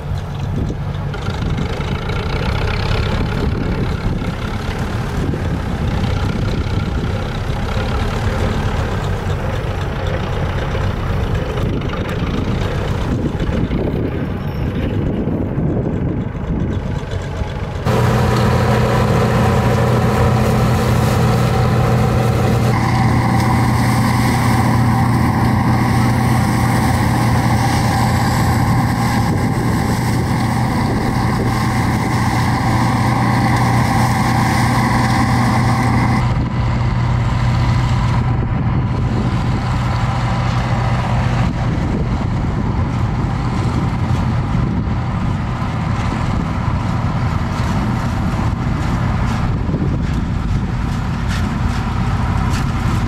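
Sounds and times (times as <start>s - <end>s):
combine harvester engine humming: 0.0s - 53.0s.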